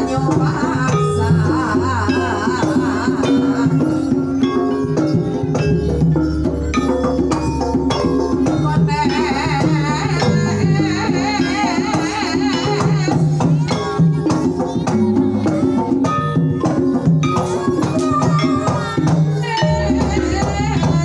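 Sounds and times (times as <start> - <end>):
woman singing: 0.0 - 5.1, 8.1 - 21.0
gamelan playing: 0.0 - 21.0.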